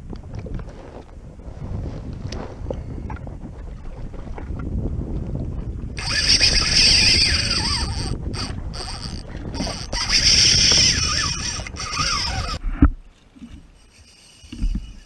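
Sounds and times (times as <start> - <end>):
fishing reel gears whirring: 6.0 - 12.6, 13.7 - 15.0.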